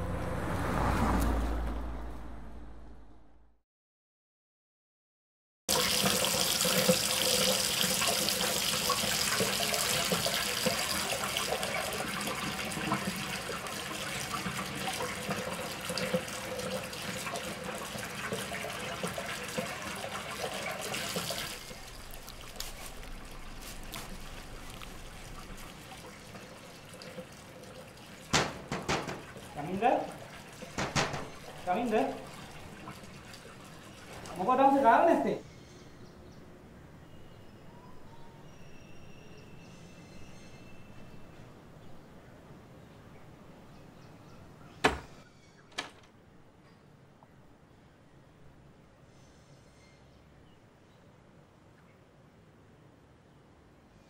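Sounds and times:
running water rushing: 5.7s - 35.4s
sharp knocks: 28.3s - 29.4s, 30.7s - 31.5s.

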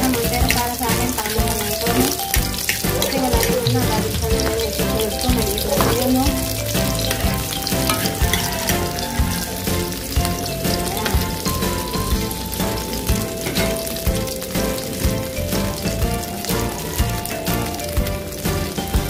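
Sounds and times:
food sizzling in oil: 0.0s - 19.0s.

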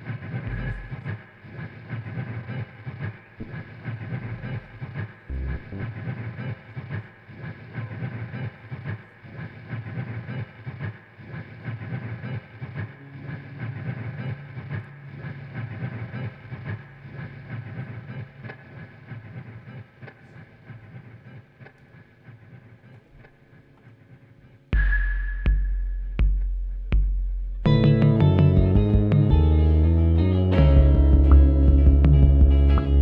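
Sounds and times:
low pulsing throb: 0.0s - 1.4s, 3.4s - 6.6s, 24.8s - 33.0s
droning ambient guitar music: 0.0s - 33.0s.

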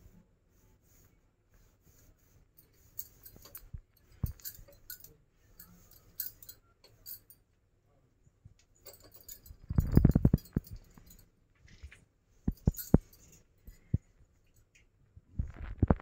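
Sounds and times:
bangles clinking: 2.6s - 7.5s, 8.8s - 11.3s, 12.4s - 14.8s.

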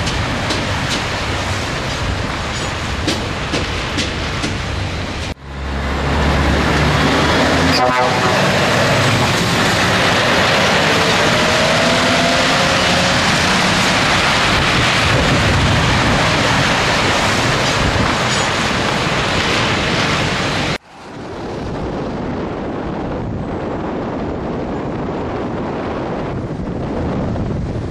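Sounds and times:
wind and road noise: 0.0s - 27.9s
diesel truck engine: 3.4s - 19.9s.

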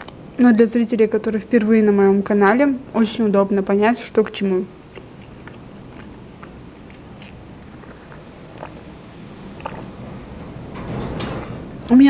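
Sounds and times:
sipping juice: 4.7s - 10.0s
chewing mouth clicks: 4.8s - 8.9s, 9.6s - 10.0s.

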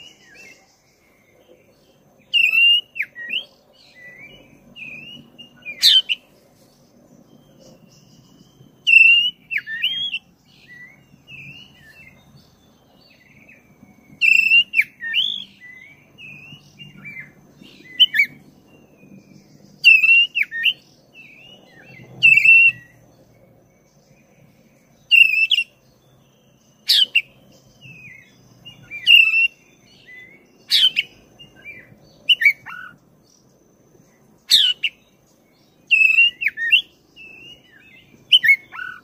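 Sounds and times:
bird singing loud high phrases: 0.0s - 39.0s.

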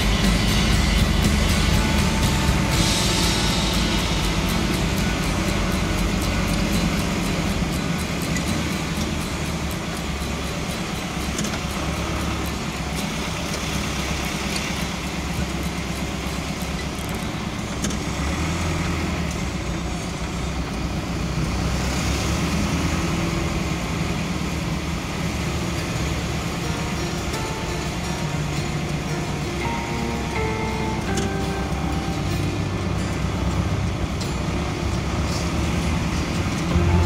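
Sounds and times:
vehicle engine and road noise: 0.0s - 37.0s.

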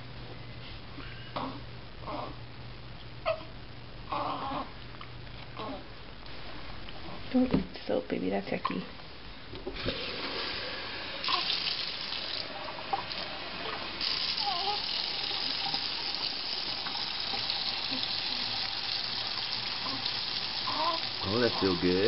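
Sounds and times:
water running from a tap: 9.8s - 22.0s.

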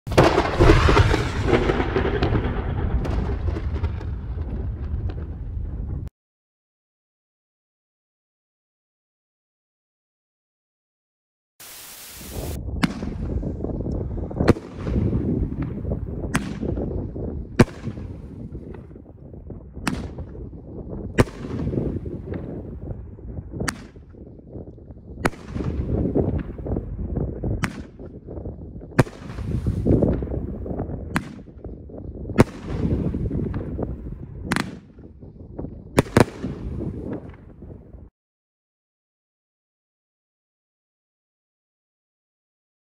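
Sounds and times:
fireworks booming: 0.1s - 6.1s, 11.6s - 38.1s
low rumble: 0.2s - 6.1s
hiss: 11.6s - 12.6s.

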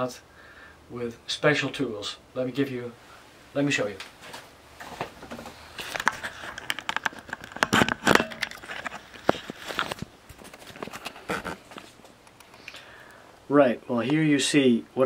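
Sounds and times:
camera handling noise: 5.8s - 12.8s.

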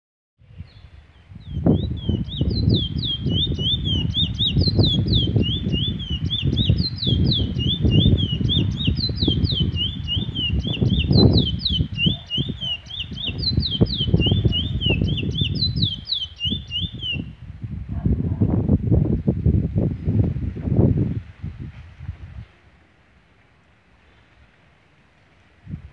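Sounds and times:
wind buffeting microphone: 0.4s - 22.9s, 25.6s - 25.9s
bird singing fast song: 0.5s - 17.4s.

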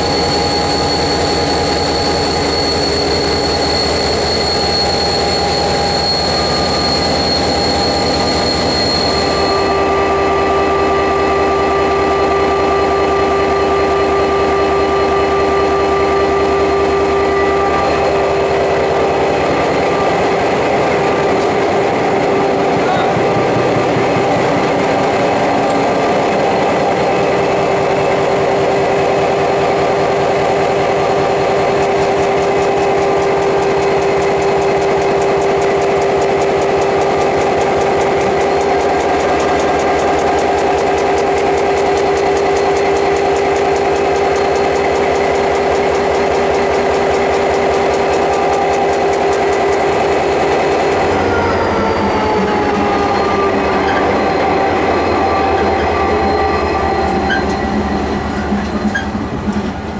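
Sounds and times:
diesel locomotive engine drone: 0.0s - 59.9s.

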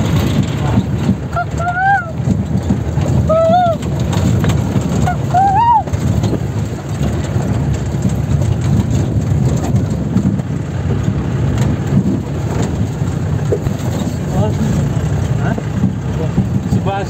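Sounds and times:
engine and tyres rumbling: 0.0s - 17.0s.

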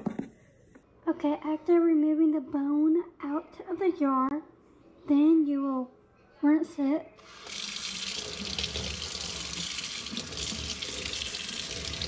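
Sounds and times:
faucet running into steel sink: 7.2s - 12.0s.

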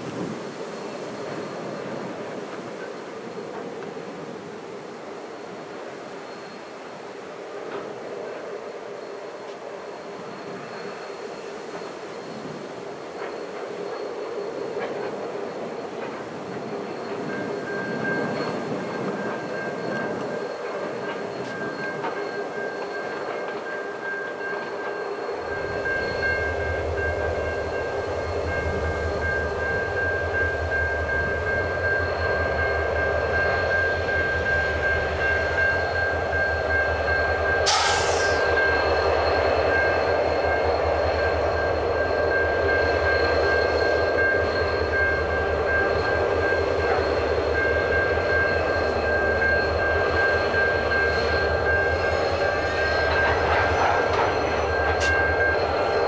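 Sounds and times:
diesel locomotive engines rumbling: 0.0s - 56.0s
short hiss: 37.7s - 38.5s.

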